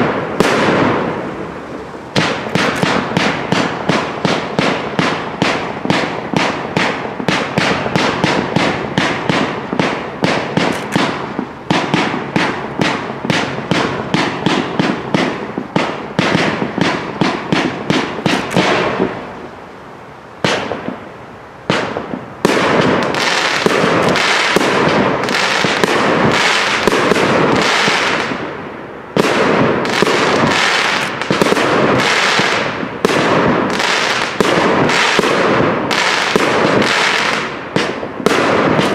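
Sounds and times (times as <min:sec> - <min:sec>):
fireworks volley of sharp reports: 0:00.0 - 0:19.5, 0:20.4 - 0:38.9
fireworks crackling: 0:00.0 - 0:38.9.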